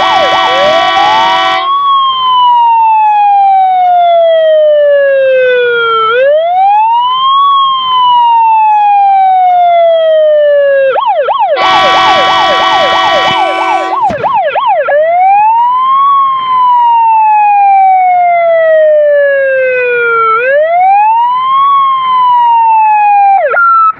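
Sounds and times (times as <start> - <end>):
horn blast: 0.0 - 1.7, 11.6 - 14.1
fire engine siren: 0.0 - 23.9.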